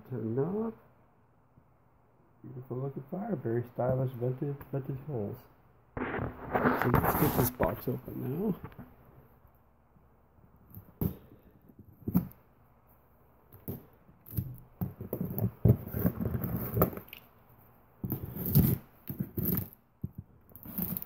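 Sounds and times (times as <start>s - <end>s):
cardboard rustling: 6.0s - 8.9s, 13.6s - 17.2s
scissors scraping through tape: 18.0s - 19.8s.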